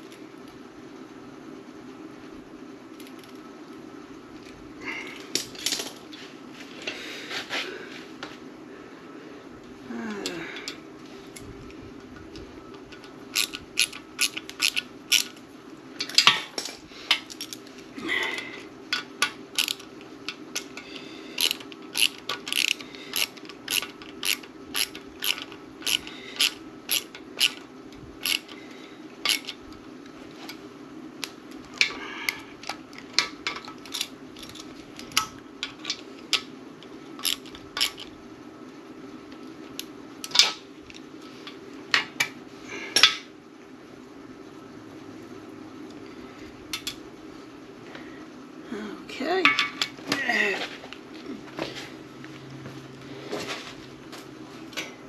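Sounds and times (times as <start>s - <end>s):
steady low hum: 0.0s - 55.0s
metallic clicks of hand tools: 21.4s - 27.6s, 29.2s - 29.6s.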